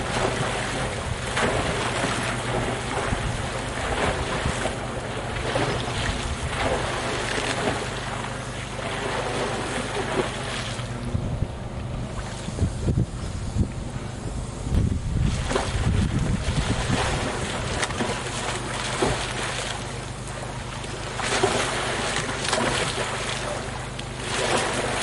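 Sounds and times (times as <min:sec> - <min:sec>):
paddle slapping water: 0:00.0 - 0:10.9, 0:14.8 - 0:25.0
kayak splashing in water: 0:00.0 - 0:11.1, 0:15.2 - 0:25.0
wind noise on microphone: 0:05.5 - 0:07.0, 0:10.9 - 0:18.2.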